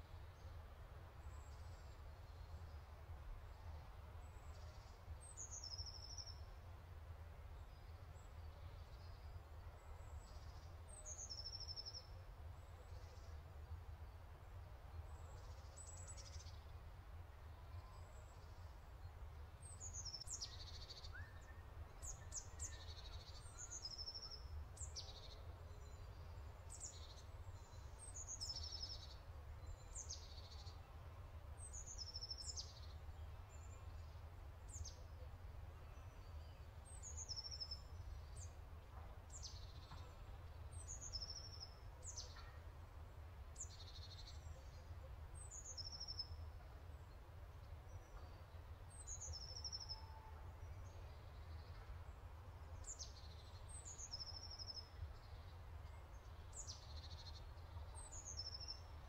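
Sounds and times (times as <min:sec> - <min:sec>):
small birds chirping: 0:19.6 - 0:30.8.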